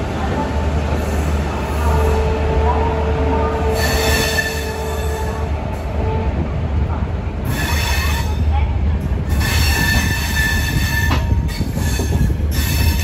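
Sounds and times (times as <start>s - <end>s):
low train rumble: 0.0s - 13.0s
train wheels squealing: 9.3s - 13.0s.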